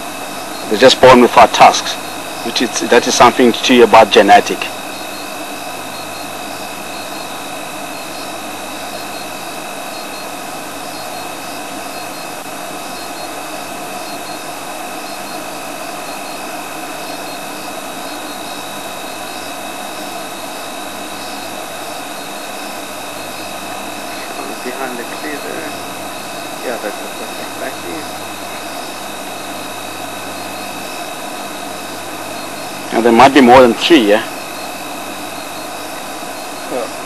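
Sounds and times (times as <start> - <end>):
faint high chirping: 0.0 - 37.0.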